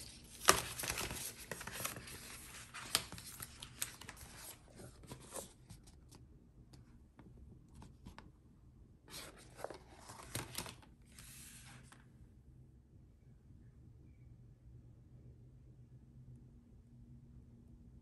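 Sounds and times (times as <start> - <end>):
paper rustling and sliding: 0.0 - 5.9, 9.1 - 12.0.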